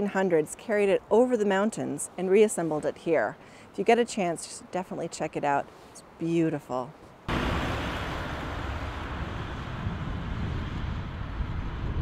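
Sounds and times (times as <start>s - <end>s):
car engine and tyre noise: 7.3s - 12.0s.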